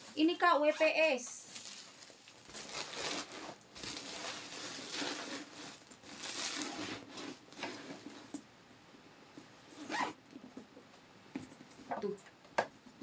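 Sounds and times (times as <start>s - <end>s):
plastic bag rustling: 0.0s - 8.3s.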